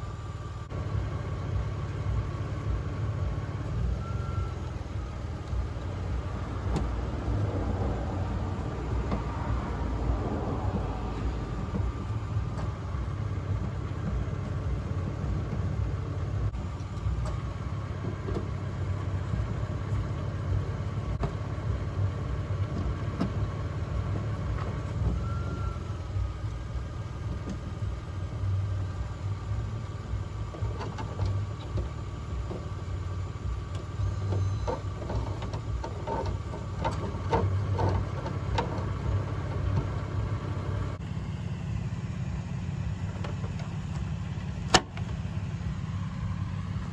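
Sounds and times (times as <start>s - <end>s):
engine idling low rumble: 0.0s - 46.9s.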